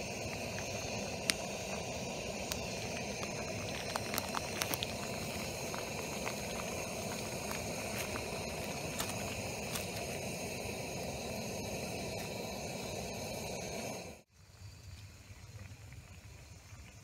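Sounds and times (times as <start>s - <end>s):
water boiling in a pot: 0.0s - 14.3s
plastic bag crackling: 2.4s - 10.2s.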